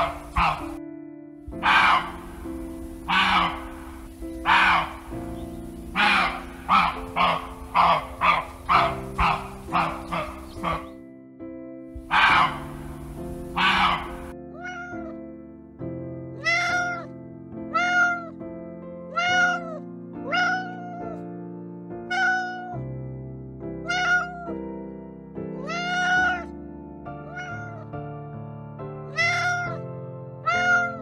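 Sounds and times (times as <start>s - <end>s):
deer barking: 0.0s - 0.8s, 1.5s - 11.0s, 12.0s - 14.9s
soft background music: 0.0s - 31.0s
cat meowing: 13.6s - 15.2s, 16.4s - 17.1s, 17.7s - 18.4s, 19.1s - 21.2s, 22.1s - 22.8s, 23.8s - 24.5s, 25.6s - 26.5s, 27.2s - 27.9s, 29.1s - 29.8s, 30.4s - 31.0s.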